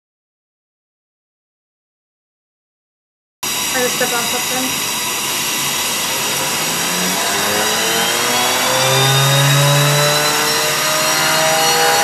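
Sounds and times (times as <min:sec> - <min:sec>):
gas burner roaring: 0:03.4 - 0:12.0
steam hissing: 0:03.4 - 0:12.0
turbine whine rising in pitch: 0:03.4 - 0:12.0.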